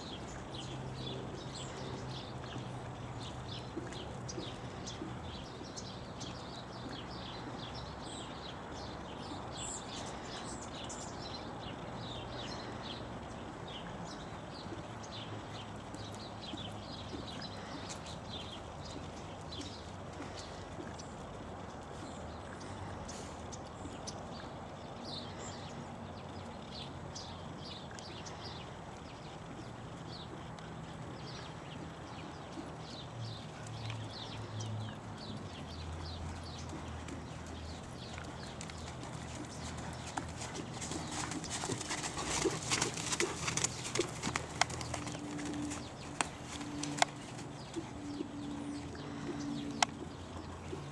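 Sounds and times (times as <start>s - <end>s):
horse hoofbeats on sand: 35.4s - 50.2s.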